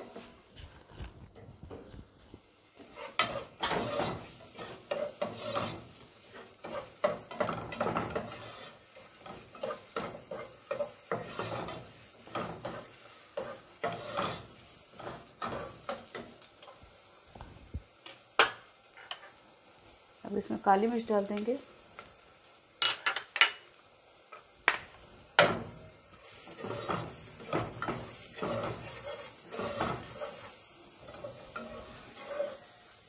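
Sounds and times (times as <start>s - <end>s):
onion and garlic sizzling: 0.0s - 33.0s
spatula scraping a pan: 2.8s - 16.8s, 25.4s - 33.0s.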